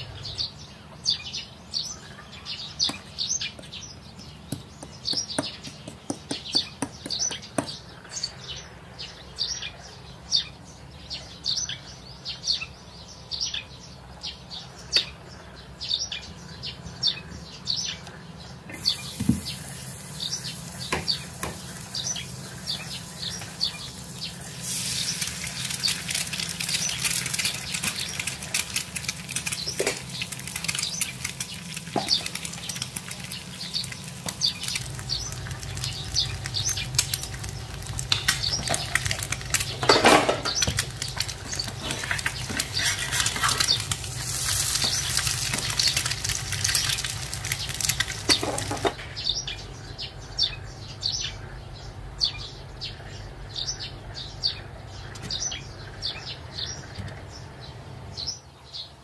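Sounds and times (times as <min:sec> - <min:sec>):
egg sizzling in a frying pan: 0:18.7 - 0:49.0.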